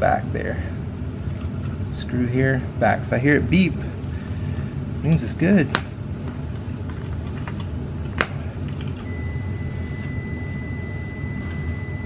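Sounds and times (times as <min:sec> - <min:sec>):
steady low hum: 0:00.0 - 0:12.0
multimeter continuity beep: 0:09.0 - 0:12.0.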